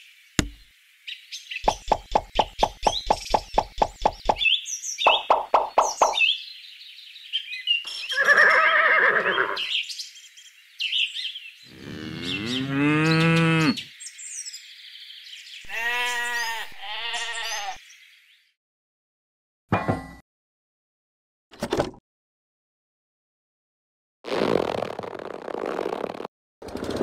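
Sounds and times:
cow mooing: 11.7s - 13.9s
animal call: 15.7s - 17.8s
sheep bleating: 15.7s - 17.8s.

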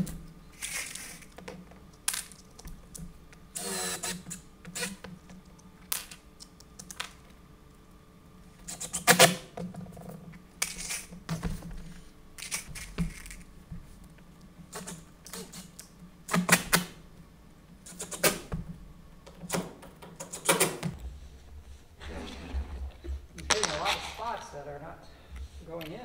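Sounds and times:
cordless drill driving screws: 3.6s - 4.9s.

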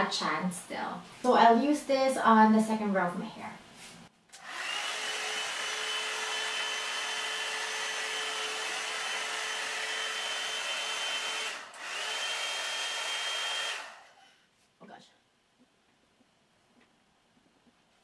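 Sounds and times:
hair dryer whirring: 4.4s - 14.2s.

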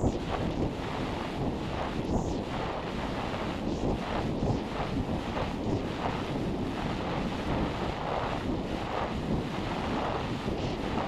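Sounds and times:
rushing wind noise: 0.0s - 11.0s.

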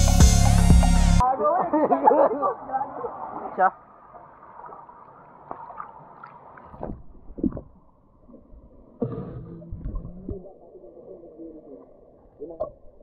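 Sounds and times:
muffled underwater water rush: 2.2s - 13.0s
small water splashes: 2.7s - 9.0s
muffled underwater thuds: 8.9s - 10.5s.

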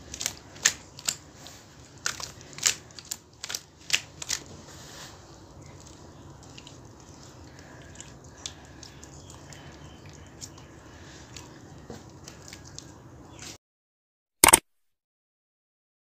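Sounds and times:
hands kneading wet paste: 0.0s - 13.6s
short loud click: 14.4s - 14.6s.

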